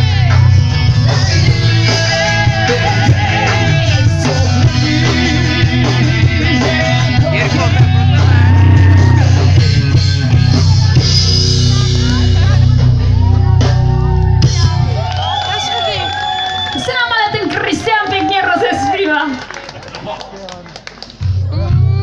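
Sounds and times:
person singing: 0.0s - 11.1s, 21.4s - 22.0s
live rock band playing: 0.0s - 19.2s
bass: 0.0s - 22.0s.

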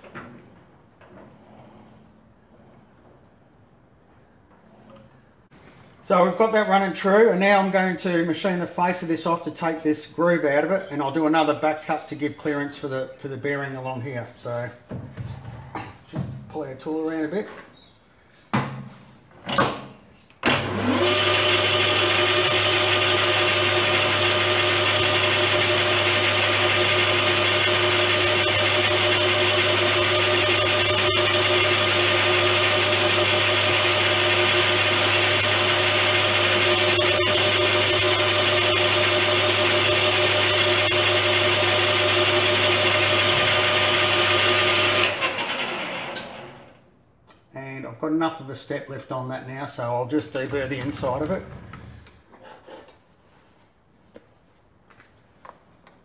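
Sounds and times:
metal lathe running: 20.5s - 46.6s.

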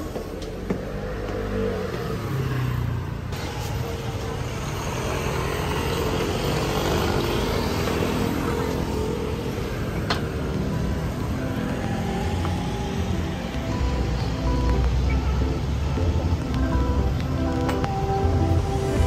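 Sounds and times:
city street traffic: 0.0s - 19.0s
soft background music: 8.8s - 19.0s.

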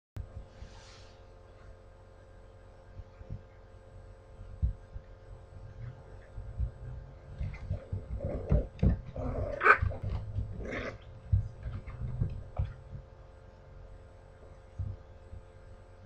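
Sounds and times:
puppies growling and yipping: 7.3s - 12.4s.

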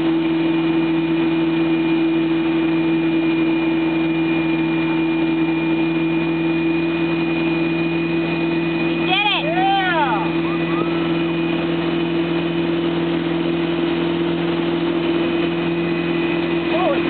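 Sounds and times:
motorboat engine drone: 0.0s - 17.0s
rushing wind and water: 0.0s - 17.0s.

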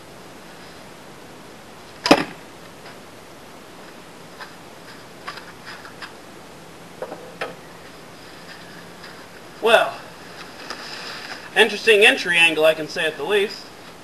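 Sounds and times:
arrow striking target: 2.0s - 2.4s.

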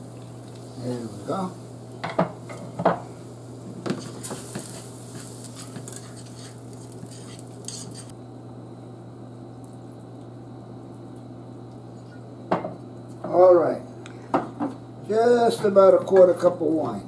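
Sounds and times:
low steady hum: 0.0s - 17.0s
metal spoon scraping skillet: 3.9s - 8.1s.

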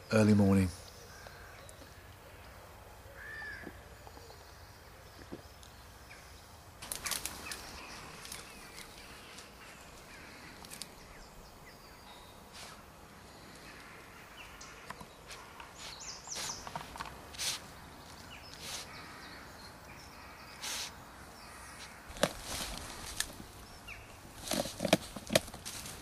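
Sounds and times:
dog rustling in undergrowth: 6.8s - 11.0s, 15.2s - 19.0s, 21.8s - 23.7s, 24.3s - 26.0s
leaves and twigs crackling: 6.8s - 19.2s, 19.9s - 26.0s.

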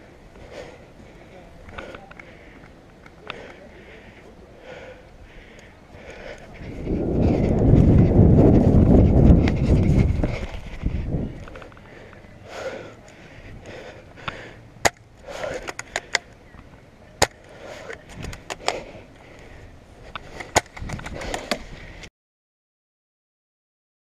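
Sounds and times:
rustling movement: 5.2s - 22.1s.

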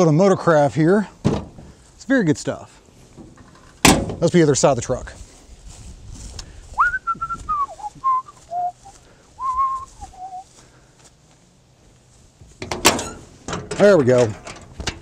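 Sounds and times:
man whistling a tune: 6.8s - 10.5s.

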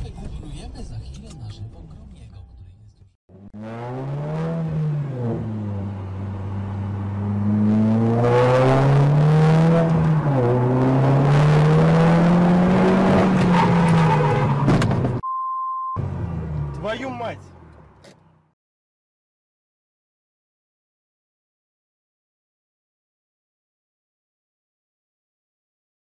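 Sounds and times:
car engine accelerating hard: 3.3s - 15.2s.

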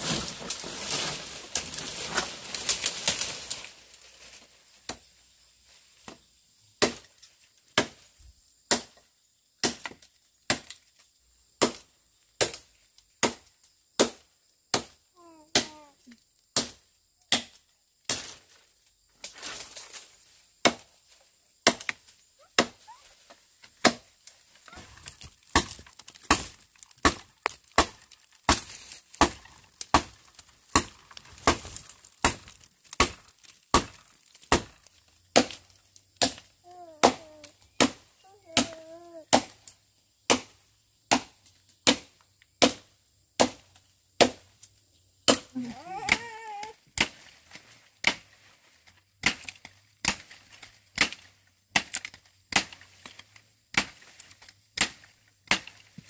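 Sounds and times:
wood chopping strikes: 6.8s - 7.1s, 8.7s - 9.0s, 9.6s - 10.8s, 11.6s - 12.6s, 13.2s - 15.8s, 16.6s - 18.4s, 20.6s - 20.9s, 21.6s - 22.8s, 23.6s - 24.1s, 24.7s - 39.6s, 40.3s - 44.4s, 45.2s - 47.3s, 49.2s - 56.0s.

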